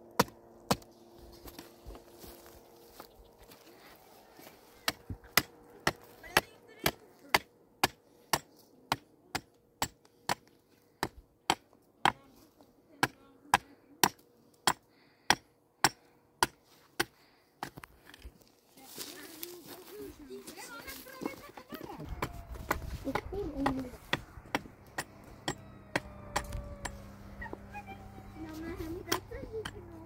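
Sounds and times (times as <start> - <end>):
hammer blows: 22.0 - 28.4.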